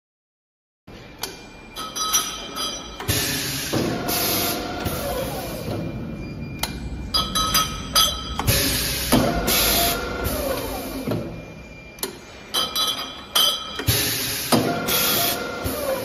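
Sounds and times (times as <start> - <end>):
machine running: 0.9 - 16.0
sharp metallic clanks: 1.2 - 4.0, 6.6 - 9.9, 12.0 - 14.8.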